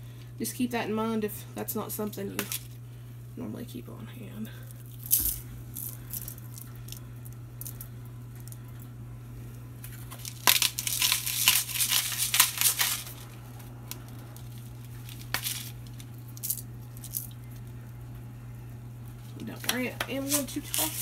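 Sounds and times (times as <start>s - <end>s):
steady low hum: 0.0s - 21.0s
pepper mill grinding: 4.9s - 8.8s, 9.9s - 13.3s, 13.9s - 17.6s, 19.6s - 21.0s.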